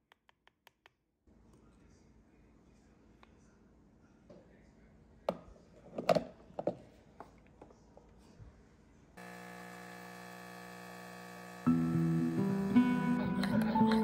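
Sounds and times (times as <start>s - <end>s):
background music: 11.6s - 14.0s.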